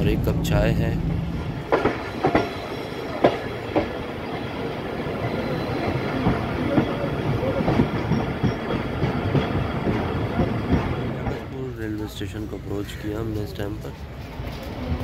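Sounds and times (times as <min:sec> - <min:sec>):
train rumbling on rails: 0:00.0 - 0:15.0
wheels clacking over rail joints: 0:01.3 - 0:15.0.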